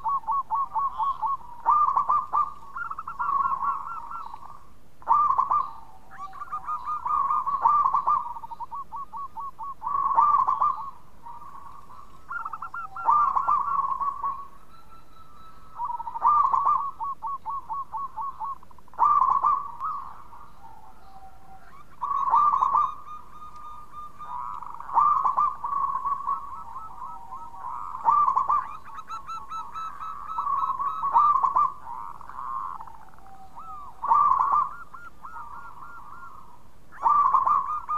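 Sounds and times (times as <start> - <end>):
dove cooing: 0.0 - 37.9.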